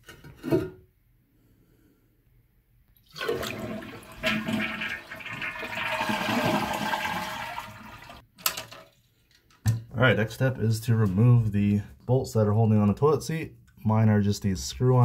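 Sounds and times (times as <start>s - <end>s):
toilet flushing: 3.0s - 8.2s.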